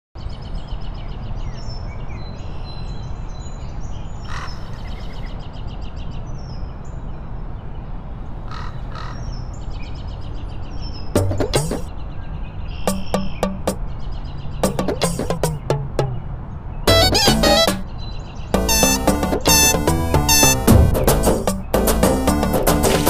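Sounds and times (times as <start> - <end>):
birds chirping: 8.9 - 22.6.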